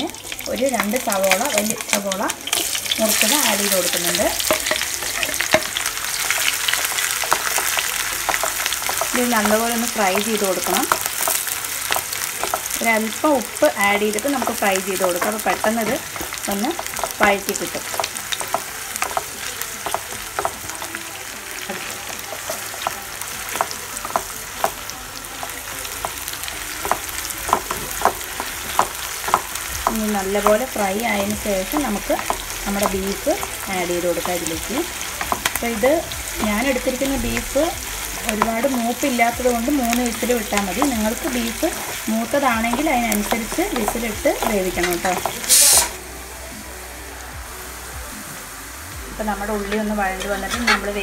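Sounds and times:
onions sizzling in oil: 0.0 - 51.0
spatula scraping and knocking pan: 2.5 - 9.7, 21.6 - 45.9, 49.7 - 51.0.

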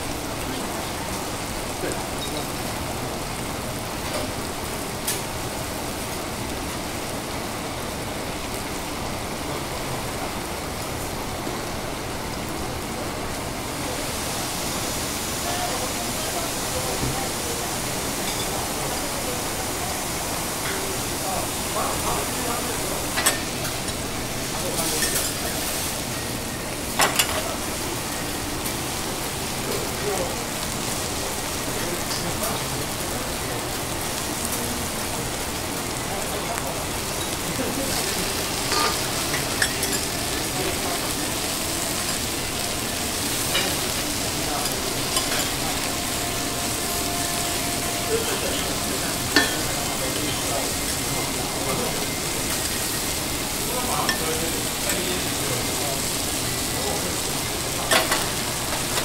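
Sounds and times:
food sizzling on griddle: 0.0 - 59.0.

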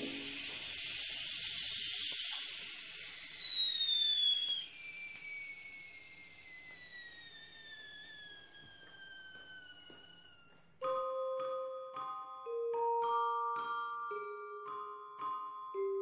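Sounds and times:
high ringing tone: 0.0 - 3.8.

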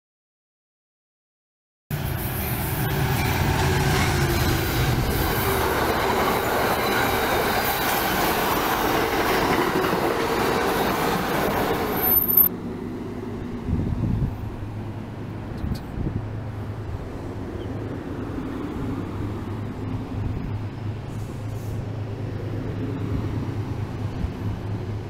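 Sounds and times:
train wheels rumbling on rail: 1.9 - 12.5, 13.4 - 25.0
high squeal: 2.1 - 8.7, 10.6 - 12.5.

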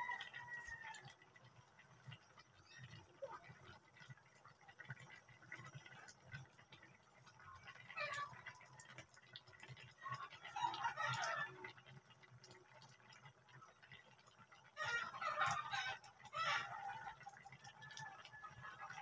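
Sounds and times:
rooster crowing: 0.0 - 1.1, 10.5 - 11.6, 14.8 - 19.0
chickens clucking: 7.4 - 8.8, 10.0 - 11.8, 14.7 - 19.0.

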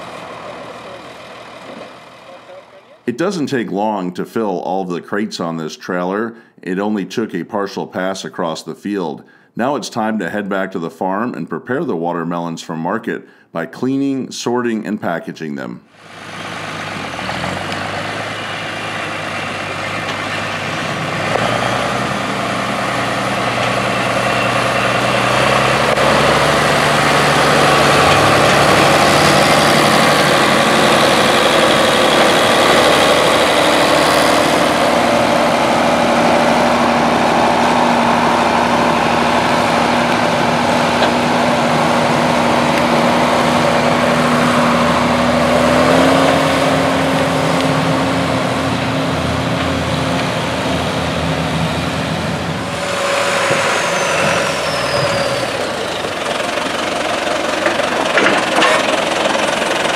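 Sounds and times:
tractor diesel engine running: 0.0 - 3.1, 16.0 - 59.9.

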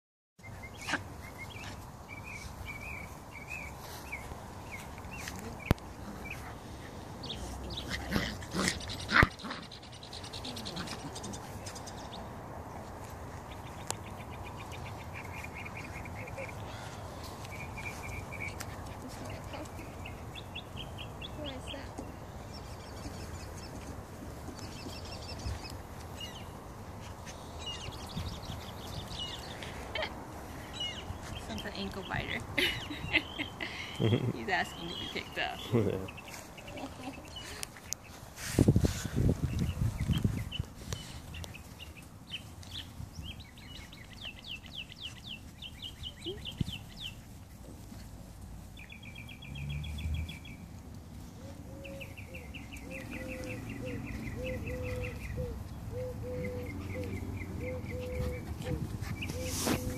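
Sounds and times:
birds chirping: 0.4 - 59.9
puppies whining and yipping: 53.3 - 59.9.

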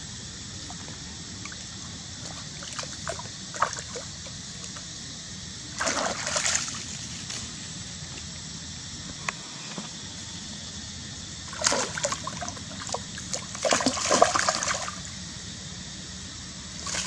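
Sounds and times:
stream water trickling: 0.2 - 8.0, 10.6 - 17.0
monkeys splashing in water: 5.8 - 7.0, 11.5 - 15.0.

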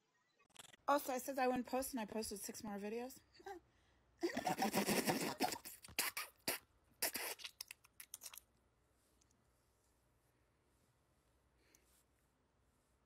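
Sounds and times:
woman spluttering and spitting: 4.4 - 8.5.

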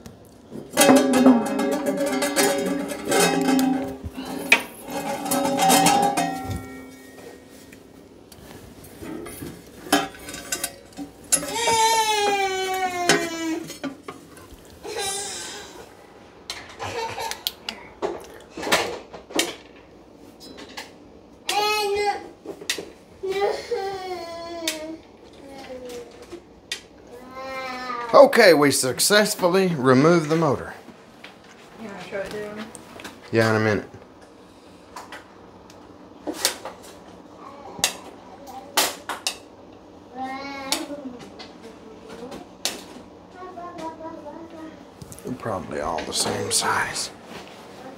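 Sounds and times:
metal clinks and knocks: 0.7 - 4.1, 4.8 - 7.4
child's voice: 21.5 - 22.3, 23.3 - 26.2, 27.1 - 28.2, 37.4 - 38.8, 40.1 - 42.5, 43.3 - 44.9.

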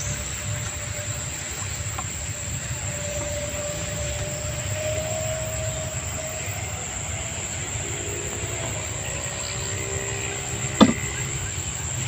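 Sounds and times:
faint high whine: 0.0 - 12.0
sharp knock: 10.8 - 11.0.

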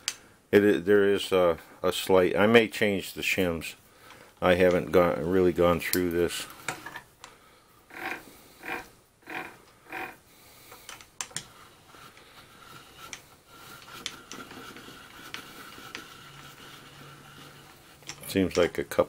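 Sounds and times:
handwheel gearing whirs: 7.9 - 18.8.

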